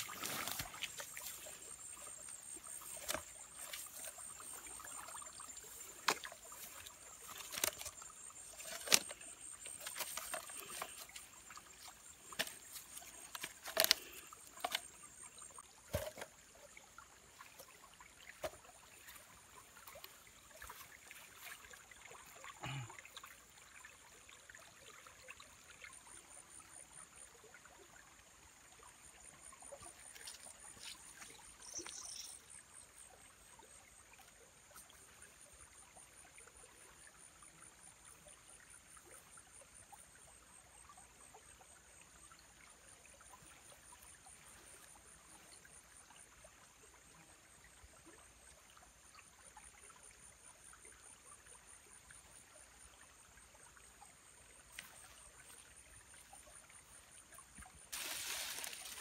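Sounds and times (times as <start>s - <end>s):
bamboo slats clicking and rustling: 0.0s - 1.4s, 2.8s - 4.2s, 5.8s - 15.0s, 15.9s - 16.3s
water trickling: 0.0s - 59.0s.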